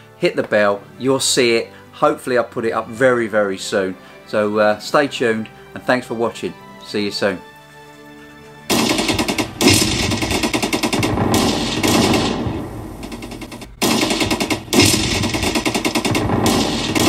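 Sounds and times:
machine-gun fire bursts: 8.7 - 17.0.

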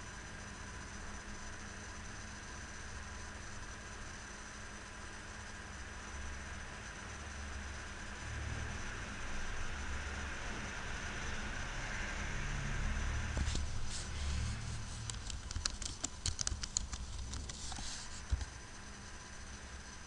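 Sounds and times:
low steady hum: 0.0 - 20.0
typing on a computer keyboard: 15.0 - 18.5.

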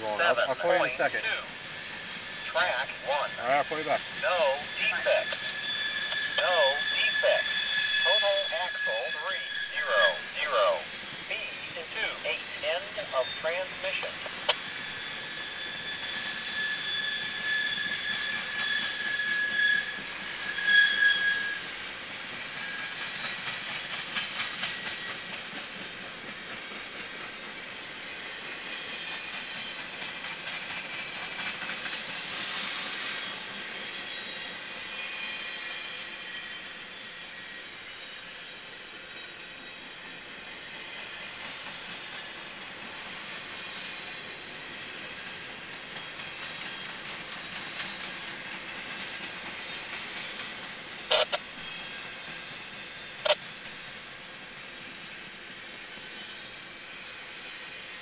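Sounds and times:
train wheel squeal: 0.6 - 58.0
train wheels clattering on rails: 13.3 - 58.0.

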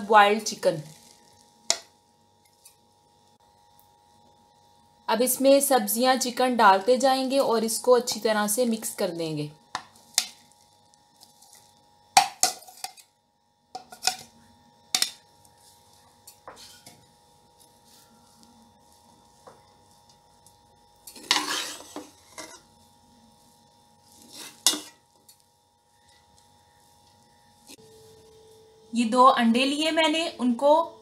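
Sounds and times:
metal spoon scraping pot: 16.3 - 17.0, 21.1 - 22.7, 24.2 - 25.0.

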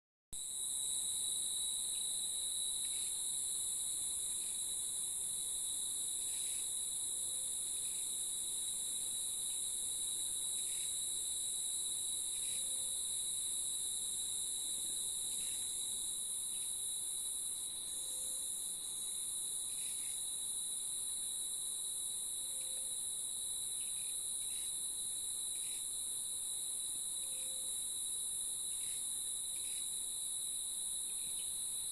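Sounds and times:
high-pitched insect drone: 0.4 - 4.8, 6.2 - 17.0, 19.7 - 20.3, 25.5 - 26.0, 28.6 - 30.1
lower insect whine: 0.4 - 31.9.

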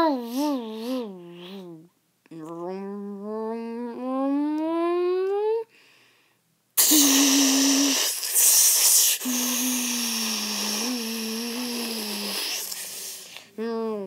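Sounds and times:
mouth-made hissing blasts: 6.8 - 13.4.

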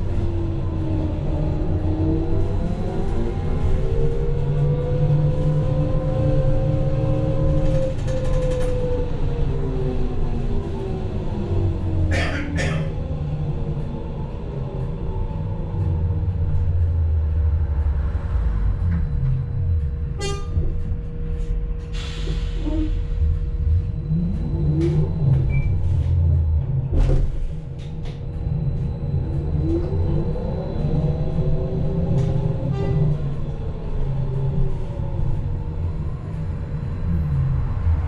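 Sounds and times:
road rumble: 0.0 - 38.0
rattles and clicks: 7.5 - 8.9.

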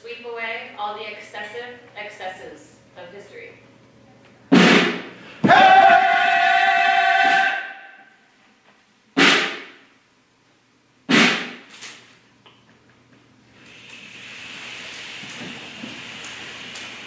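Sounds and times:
sharp percussive hits: 4.5 - 5.9, 9.2 - 9.8, 11.1 - 11.7.

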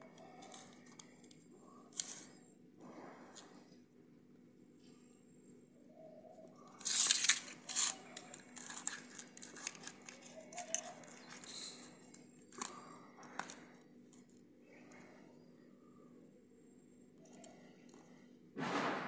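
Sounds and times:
high squeak: 11.4 - 11.9.

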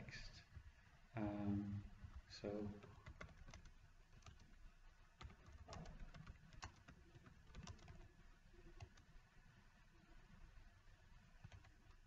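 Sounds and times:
faint keyboard typing: 0.4 - 0.8, 1.9 - 9.2, 11.1 - 12.0.

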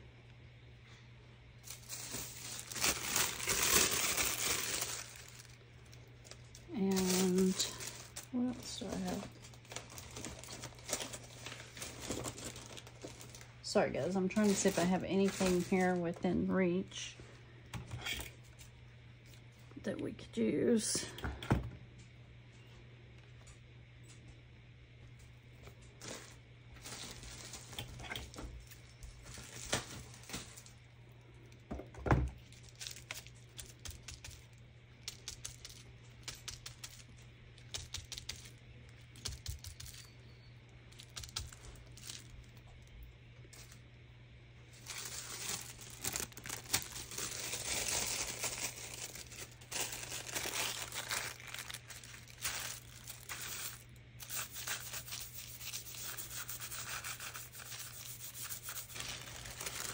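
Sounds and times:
faint low hum: 0.0 - 59.9
paper and plastic rustling: 1.6 - 16.2, 25.6 - 30.9, 43.5 - 43.8, 44.7 - 59.9.

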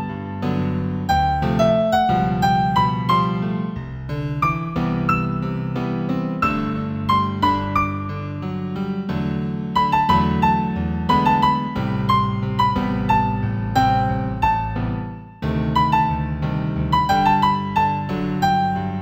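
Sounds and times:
new-age piano music: 0.0 - 19.0.

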